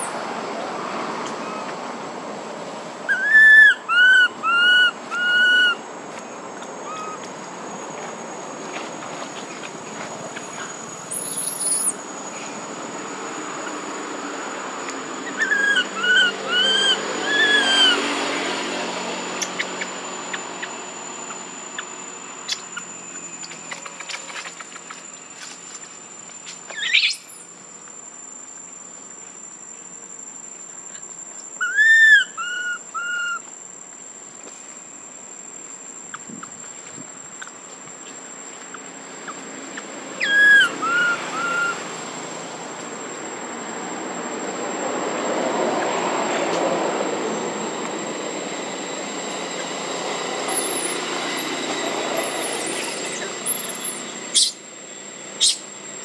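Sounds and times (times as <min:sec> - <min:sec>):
high insect whine: 0:00.0 - 0:56.0
baby monkey crying: 0:03.1 - 0:05.8, 0:06.8 - 0:07.2, 0:15.2 - 0:18.1, 0:40.2 - 0:41.8, 0:54.3 - 0:54.6.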